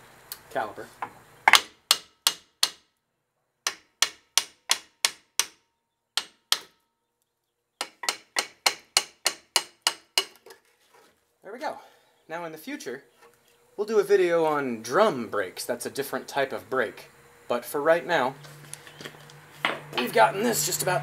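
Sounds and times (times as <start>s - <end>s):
hammer tapping on metal: 7.8s - 10.4s.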